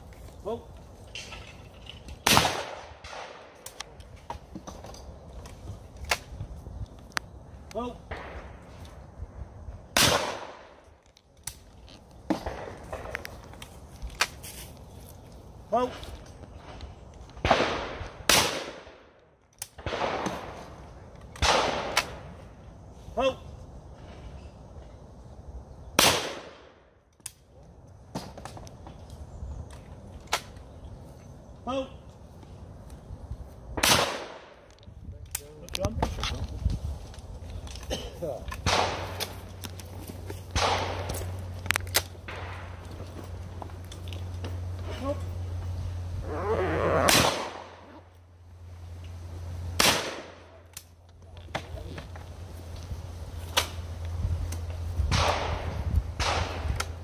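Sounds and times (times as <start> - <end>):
shotgun shot with echo: 2.2 - 3.5, 10.0 - 10.6, 33.8 - 34.5, 38.6 - 39.2, 40.6 - 41.1, 49.8 - 50.4
shotgun shot: 2.2 - 3.6, 9.9 - 10.7, 17.4 - 19.0, 19.8 - 20.6, 21.4 - 22.2, 26.0 - 26.7, 33.8 - 34.6, 38.6 - 39.3, 40.5 - 41.2, 47.1 - 47.8, 49.8 - 50.4, 55.1 - 56.8.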